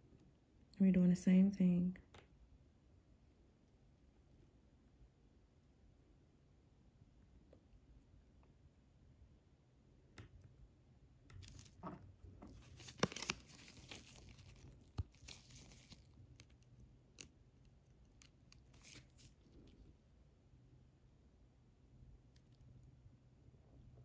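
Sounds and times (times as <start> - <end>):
stickers crinkling and peeling: 11.3 - 19.9.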